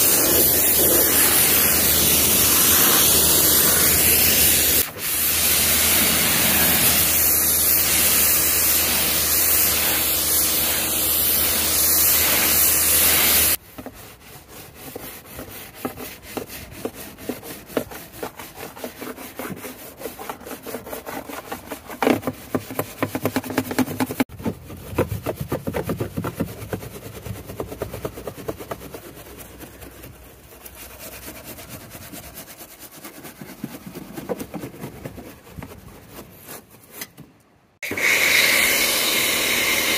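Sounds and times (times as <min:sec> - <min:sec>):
pressure washer spraying: 0:00.0 - 0:13.6, 0:37.8 - 0:39.9
scrubbing on car surface: 0:00.0 - 0:37.0.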